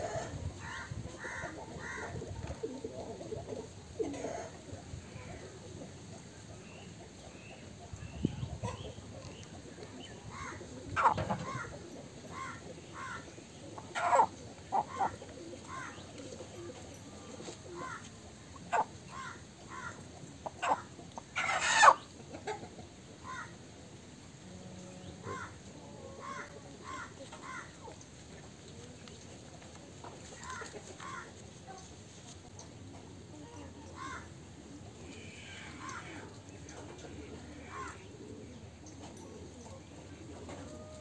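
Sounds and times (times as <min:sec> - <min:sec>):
chickens clucking: 0:00.0 - 0:41.0
chicken squawks: 0:10.3 - 0:11.7, 0:13.9 - 0:16.0, 0:18.6 - 0:23.6.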